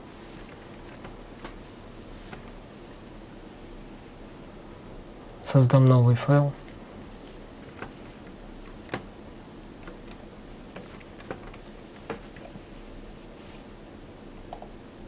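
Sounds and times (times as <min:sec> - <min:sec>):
keyboard keystroke clicks: 0:07.6 - 0:09.1, 0:09.8 - 0:12.5.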